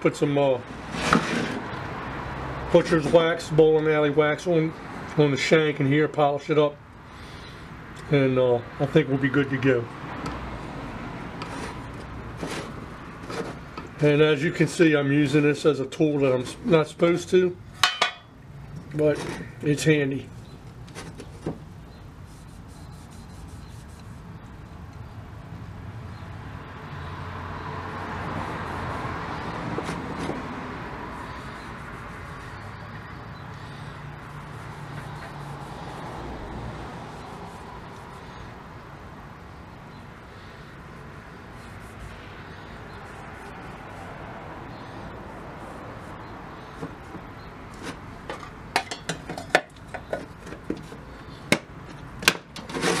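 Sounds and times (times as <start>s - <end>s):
sharp clicks and knocks: 46.8s - 53.0s.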